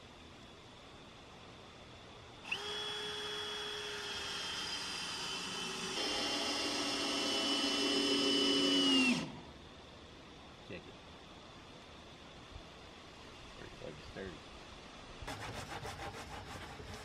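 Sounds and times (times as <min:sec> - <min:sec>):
cordless drill whining: 0:02.4 - 0:09.4.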